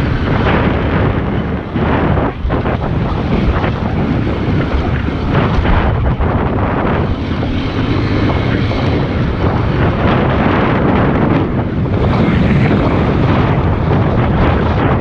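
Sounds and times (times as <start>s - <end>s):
motorcycle engine running: 0.0s - 15.0s
wind rumble on microphone: 0.0s - 15.0s.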